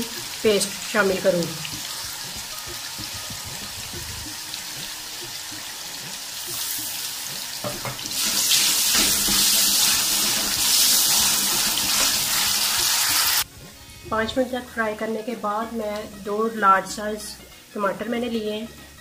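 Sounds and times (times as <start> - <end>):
paste sizzling in oil: 0.0 - 13.4.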